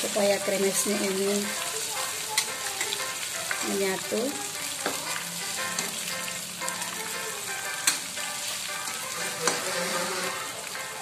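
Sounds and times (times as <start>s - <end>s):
fish deep-frying in oil: 0.0s - 11.0s
spatula scraping a wok: 9.1s - 10.6s.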